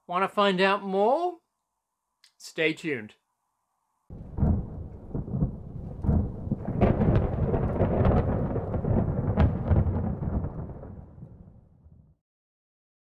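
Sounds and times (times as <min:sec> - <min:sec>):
thunder rumbling and crackling: 0:04.1 - 0:12.2.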